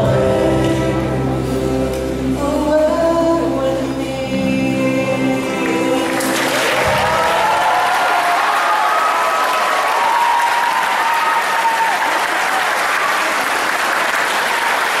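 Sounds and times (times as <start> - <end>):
audience applauding: 6.0 - 15.0
people cheering: 6.0 - 15.0.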